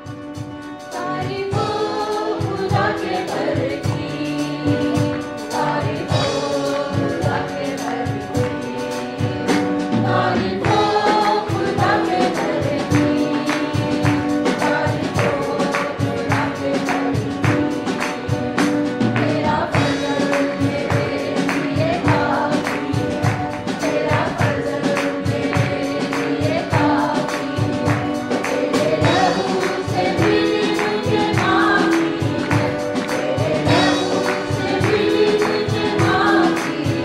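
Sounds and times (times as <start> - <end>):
choir singing gospel song: 0.0 - 37.0
instrumental backing with beat: 0.0 - 37.0.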